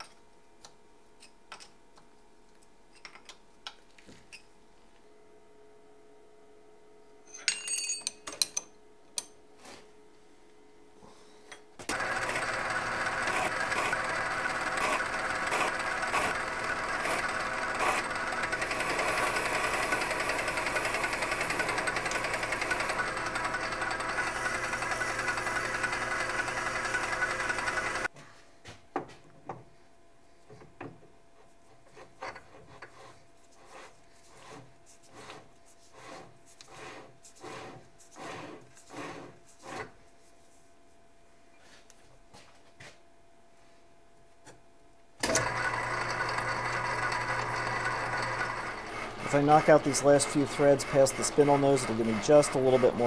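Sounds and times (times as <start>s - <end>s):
metal lathe cutting: 11.9s - 28.1s, 45.2s - 53.0s.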